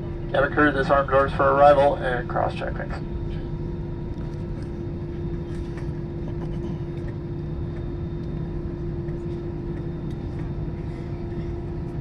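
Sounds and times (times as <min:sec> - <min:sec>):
airliner cabin rumble and hum: 0:00.0 - 0:12.0.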